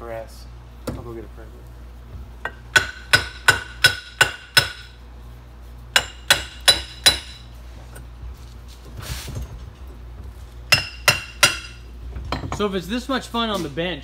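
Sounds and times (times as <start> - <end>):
hammer striking metal: 2.4 - 4.9, 6.0 - 7.4, 10.7 - 12.6.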